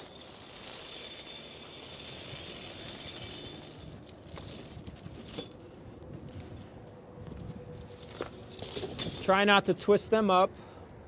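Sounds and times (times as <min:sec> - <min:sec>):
sharp chain link clinks: 0:00.0 - 0:05.8, 0:07.7 - 0:09.6
steel tire chains jangling: 0:00.0 - 0:05.8, 0:07.7 - 0:09.6.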